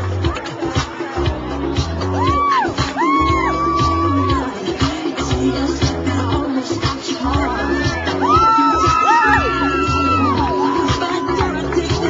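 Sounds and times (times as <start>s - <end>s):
pop music with steady beat: 0.0s - 12.0s.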